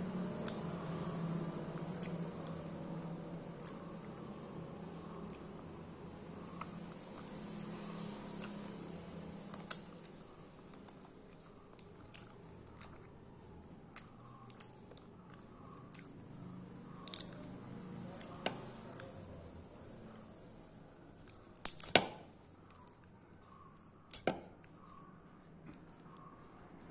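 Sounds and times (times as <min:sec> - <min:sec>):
chewing mouth sounds: 0:00.2 - 0:08.8, 0:09.4 - 0:19.4.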